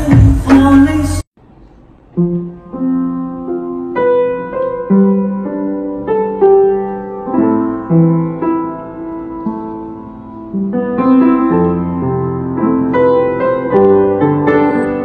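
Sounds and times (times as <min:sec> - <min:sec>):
upright piano played slowly: 0:02.0 - 0:15.0.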